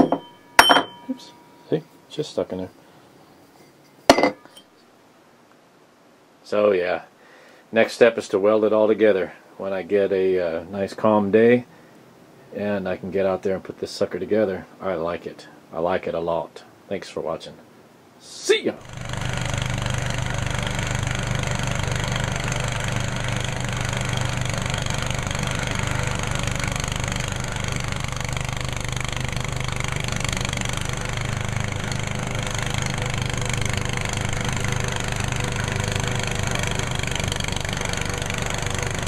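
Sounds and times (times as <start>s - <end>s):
tractor engine droning: 18.8s - 39.0s.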